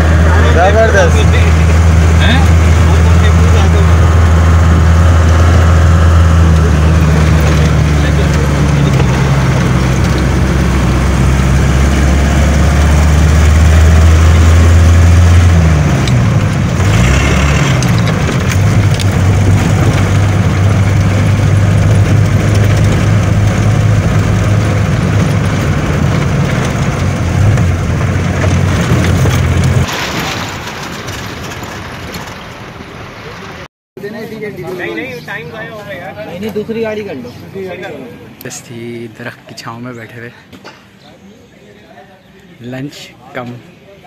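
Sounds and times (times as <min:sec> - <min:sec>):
vehicle engine running: 0:00.0 - 0:33.6.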